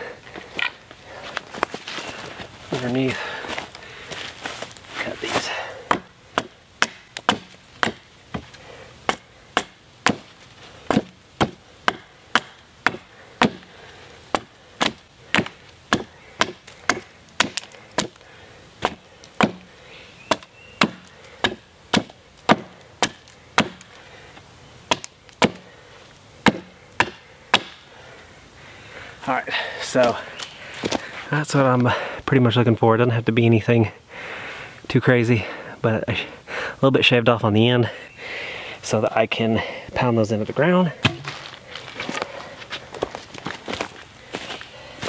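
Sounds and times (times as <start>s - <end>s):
hatchet chopping wood: 5.8s - 24.0s, 24.9s - 25.7s, 26.4s - 27.9s, 41.0s - 41.4s.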